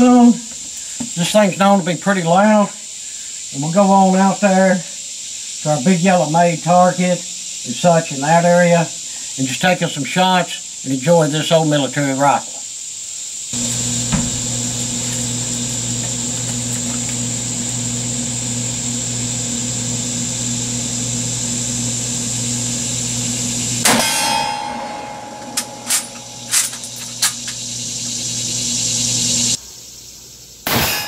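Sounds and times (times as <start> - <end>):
steady drone: 22.3 - 29.6
steel target ringing: 23.8 - 27.6, 30.7 - 31.0
rifle shot: 30.7 - 31.0.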